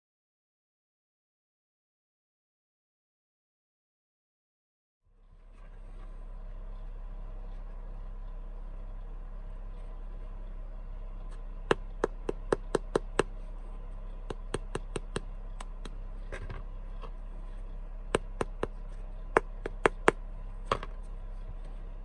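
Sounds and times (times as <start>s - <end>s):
low hum: 5.0s - 22.0s
sharp taps on scones: 11.7s - 13.4s, 14.3s - 16.0s, 18.1s - 18.8s, 19.4s - 20.8s.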